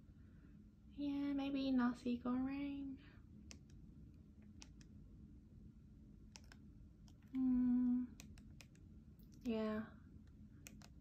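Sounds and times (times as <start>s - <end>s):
low room hum: 0.0s - 11.0s
woman humming: 7.3s - 8.2s.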